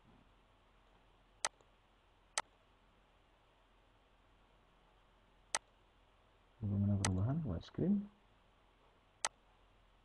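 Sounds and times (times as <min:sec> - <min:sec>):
faint steady hiss: 0:00.0 - 0:10.0
computer mouse clicks: 0:01.4 - 0:01.7, 0:09.2 - 0:09.4.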